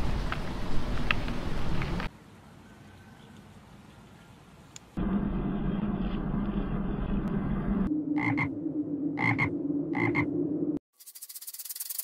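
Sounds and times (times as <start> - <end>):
low rumbling noise: 5.0 - 10.8
steady low drone: 5.0 - 10.8
frog croaking: 8.1 - 8.5, 9.2 - 10.3.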